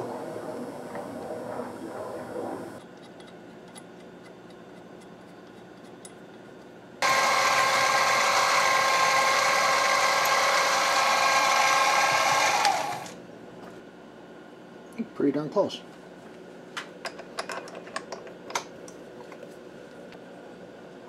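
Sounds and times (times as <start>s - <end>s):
drill press whining into steel: 7.0s - 13.2s.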